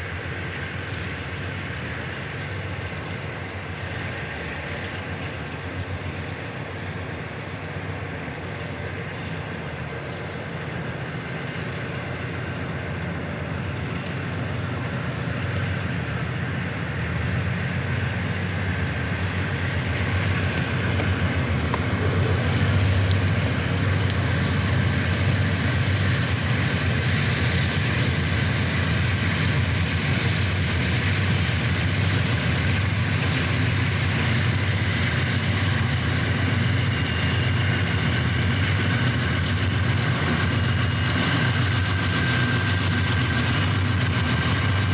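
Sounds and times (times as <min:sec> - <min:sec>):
diesel locomotives droning: 0:00.0 - 0:44.9.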